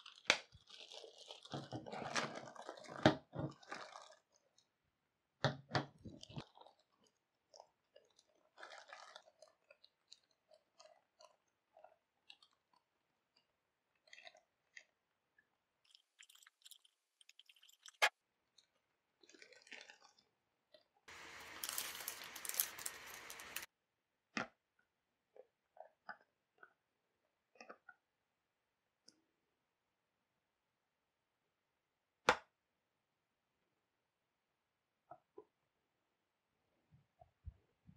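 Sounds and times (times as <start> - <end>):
plastic wrapping crinkling: 0.0 - 4.6, 6.1 - 11.3, 21.1 - 23.7.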